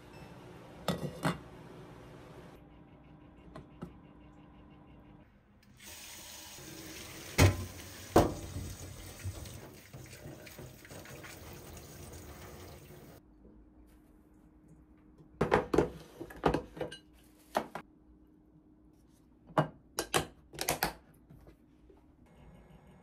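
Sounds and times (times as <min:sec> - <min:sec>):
tap water running into sink: 0:05.8 - 0:13.2.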